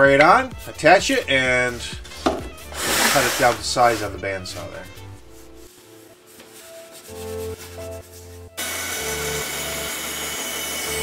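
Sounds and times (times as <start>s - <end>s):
soft background music: 0.0s - 11.0s
bandsaw cutting wood: 2.7s - 4.2s, 8.6s - 11.0s.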